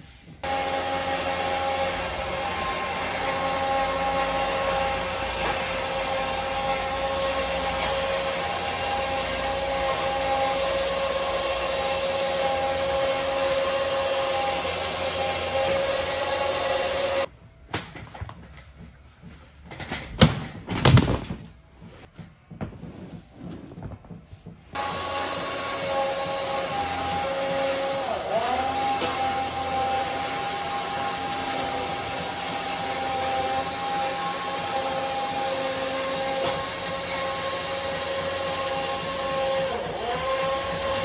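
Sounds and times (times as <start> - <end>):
floor blower whirring: 0.0 - 17.3, 24.7 - 41.0
rug rustling: 21.7 - 24.8.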